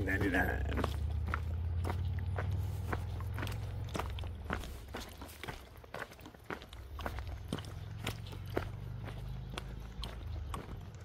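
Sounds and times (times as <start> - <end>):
footsteps on a trail: 0.0 - 11.0.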